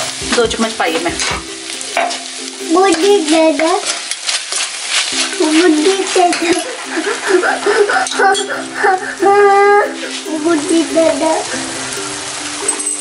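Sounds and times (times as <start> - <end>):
vegetables sizzling in a wok: 0.0 - 13.0
spoon scraping a wok: 1.0 - 7.3
wavering tune: 5.2 - 13.0.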